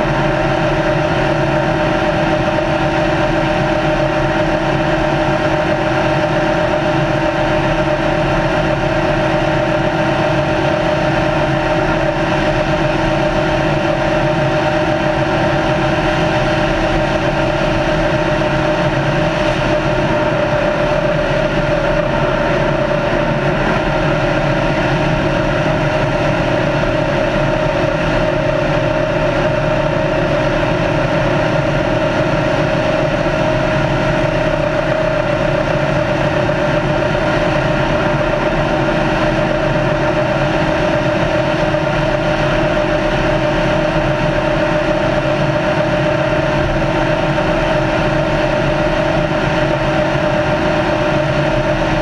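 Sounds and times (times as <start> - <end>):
wind rush: 17.4 - 41.2.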